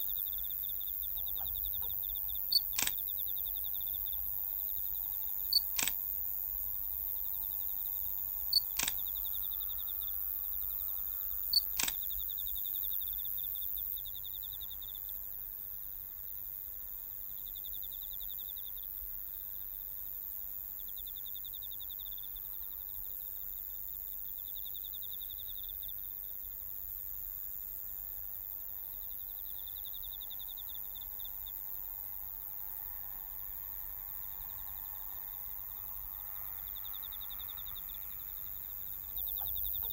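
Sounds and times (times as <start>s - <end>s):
insect trilling: 0.0s - 14.9s, 34.2s - 39.9s
camera shutter clicking: 2.7s - 3.0s, 5.8s - 6.0s, 8.8s - 9.1s, 11.8s - 12.0s.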